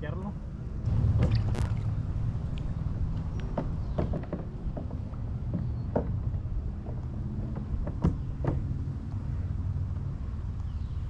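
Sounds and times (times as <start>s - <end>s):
low rumble of moving water: 0.3s - 11.0s
water plopping: 1.2s - 2.0s.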